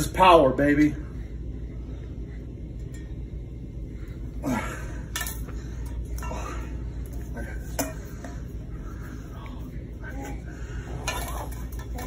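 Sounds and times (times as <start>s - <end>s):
person grunting: 4.4s - 5.0s.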